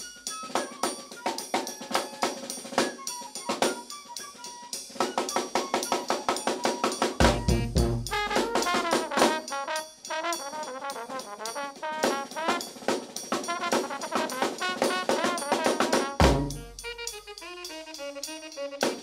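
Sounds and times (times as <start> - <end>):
snare drum beat: 5.0 - 19.0
heavy bass drum hit: 7.2 - 8.6, 16.2 - 16.9
brass band playing: 7.2 - 19.0.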